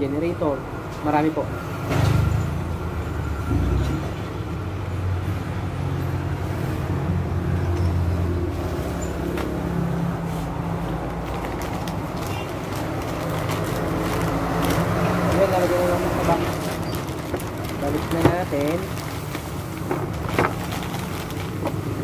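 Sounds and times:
traffic engine hum: 0.0s - 22.0s
plastic wrapping crinkling: 8.6s - 22.0s.

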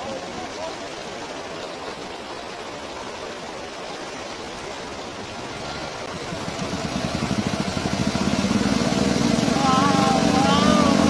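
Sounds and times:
stream water rushing: 0.0s - 11.0s
motorcycle engine running: 6.1s - 11.0s.

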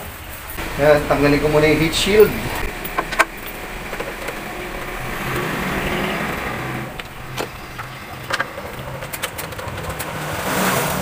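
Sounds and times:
low steady hum: 0.6s - 9.3s.

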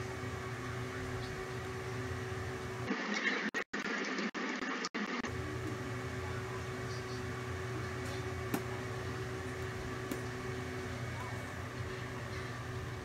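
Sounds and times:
steady mechanical hum: 0.0s - 2.9s, 5.2s - 13.0s.

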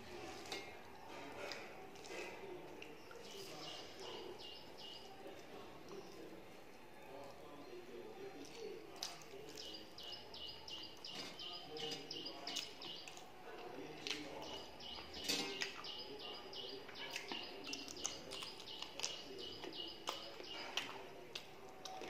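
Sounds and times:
close-up chewing sounds: 0.0s - 22.0s
bird chirping: 3.0s - 6.2s, 9.4s - 13.2s, 13.8s - 21.0s.

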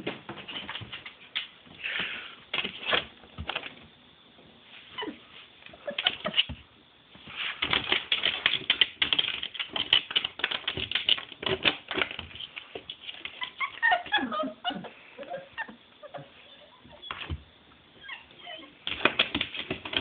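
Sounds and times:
puppy whining: 13.2s - 17.4s, 18.0s - 19.0s.

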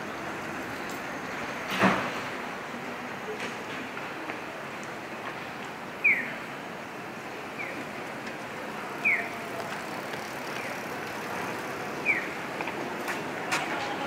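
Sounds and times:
street traffic hum: 0.0s - 14.0s.

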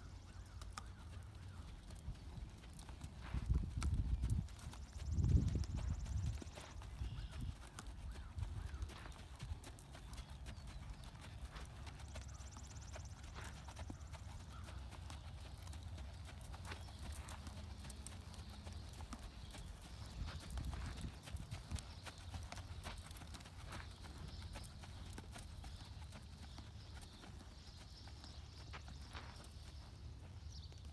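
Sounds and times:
horse hoofbeats on sand: 0.4s - 30.9s.

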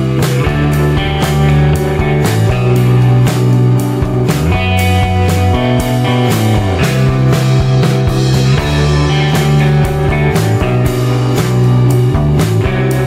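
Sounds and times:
rock music: 0.0s - 13.0s.

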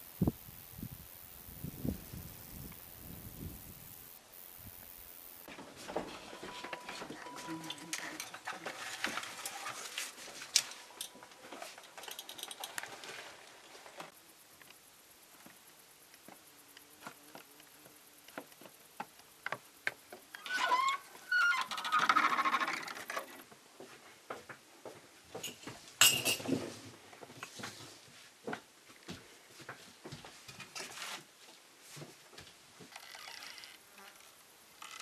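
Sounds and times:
wooden door creaking on hinges: 20.3s - 23.4s, 32.9s - 35.0s
footsteps on wooden boards: 23.4s - 25.9s, 27.0s - 30.7s.

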